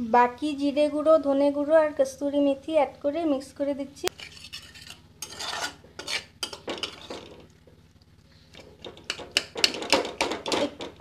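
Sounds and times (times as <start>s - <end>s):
spatula scraping a wok: 4.1s - 7.5s.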